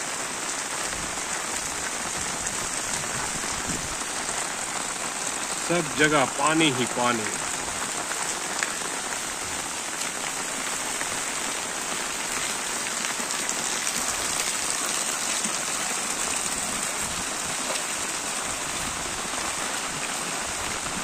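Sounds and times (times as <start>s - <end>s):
heavy rain on a flooded street: 0.0s - 21.0s.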